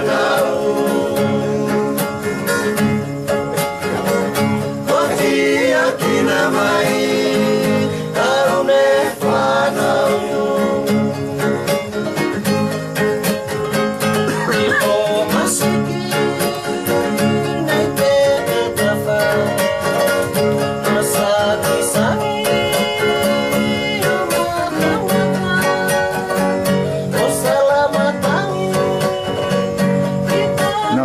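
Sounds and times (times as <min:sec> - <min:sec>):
person singing: 0:00.0 - 0:02.6, 0:14.2 - 0:31.0
plucked guitars with beat: 0:00.0 - 0:31.0.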